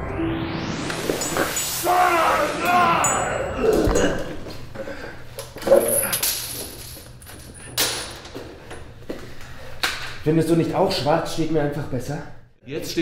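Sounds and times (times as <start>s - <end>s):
sharp hits: 0.1s - 4.2s
grunts and cries: 2.9s - 4.4s.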